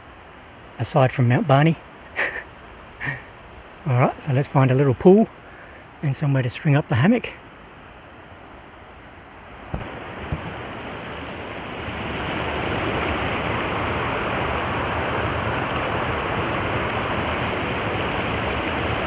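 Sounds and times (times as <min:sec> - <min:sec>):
creek water over rocks: 0:09.6 - 0:19.0.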